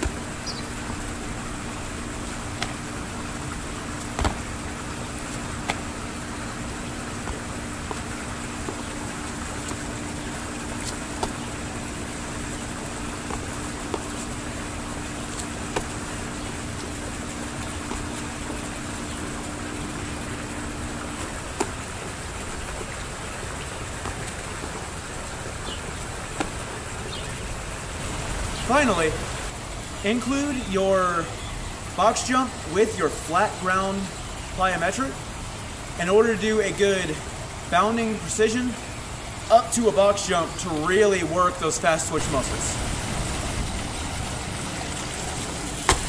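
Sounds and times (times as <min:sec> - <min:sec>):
sneakers landing on stone: 0:00.0 - 0:00.3, 0:02.4 - 0:22.1, 0:25.7 - 0:26.8
low steady hum: 0:00.0 - 0:46.0
steady hiss: 0:00.0 - 0:46.0.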